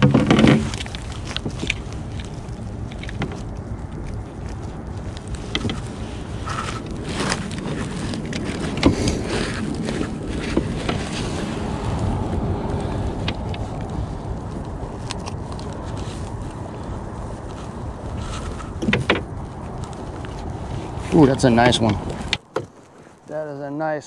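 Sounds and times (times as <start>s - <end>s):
wind noise on microphone: 0.0s - 23.2s.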